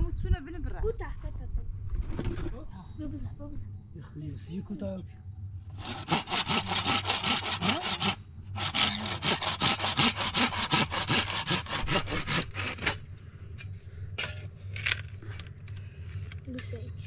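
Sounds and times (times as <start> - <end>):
saw cutting through wood: 5.7 - 13.1.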